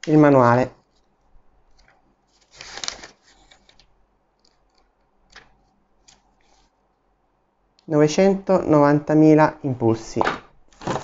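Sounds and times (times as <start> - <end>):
paper pages rustling and flicking: 0.8 - 6.7, 10.7 - 11.0.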